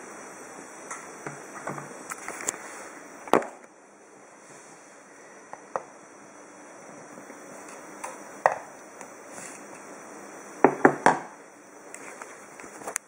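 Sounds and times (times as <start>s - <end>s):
portafilter knocking on countertop: 10.6s - 11.3s.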